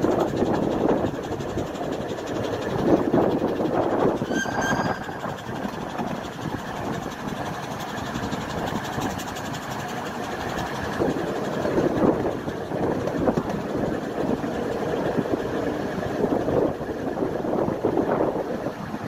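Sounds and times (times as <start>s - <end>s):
train wheels rumbling on track: 0.0s - 19.0s
brief high-pitched tone: 4.2s - 5.3s.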